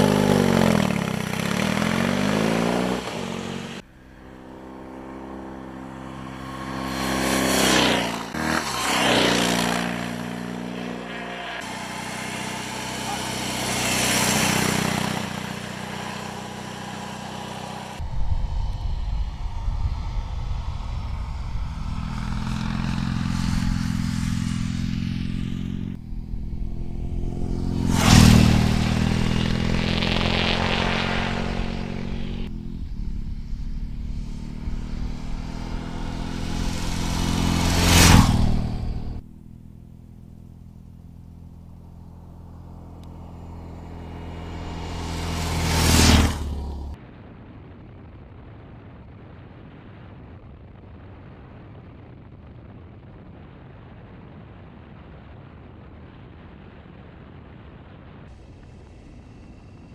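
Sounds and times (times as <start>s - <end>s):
motorcycle riding past: 0.0s - 47.0s.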